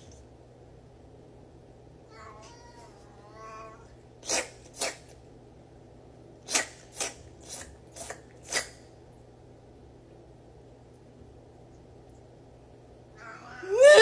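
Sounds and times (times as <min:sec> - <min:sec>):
cat meowing: 0:02.1 - 0:03.9, 0:13.2 - 0:14.0
cat sneezing: 0:04.2 - 0:05.2, 0:06.4 - 0:08.9.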